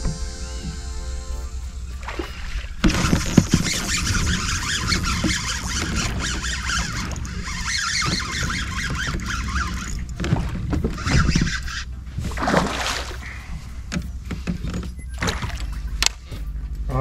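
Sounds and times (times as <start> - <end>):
fish splashing in water: 2.0 - 13.5, 15.2 - 15.8.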